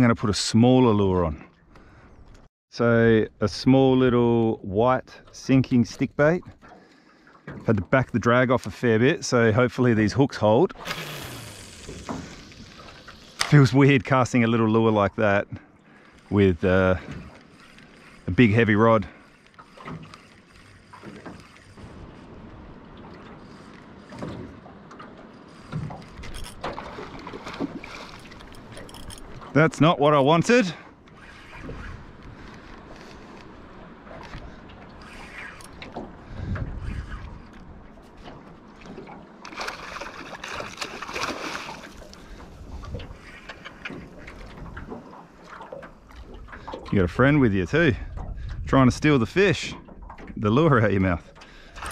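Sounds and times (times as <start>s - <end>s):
water lapping against boat hull: 0.0s - 2.5s, 3.2s - 51.9s
knocks and splashes: 6.4s - 8.2s, 10.6s - 13.8s, 19.1s - 30.0s, 34.0s - 47.0s, 49.7s - 51.9s
fish thrashing and splashing: 25.5s - 29.6s, 38.9s - 46.8s.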